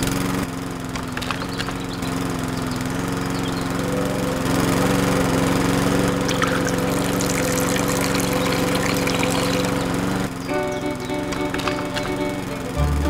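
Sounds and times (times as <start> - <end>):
small electric motor humming: 0.0 - 13.0
rollers crackling: 0.7 - 13.0.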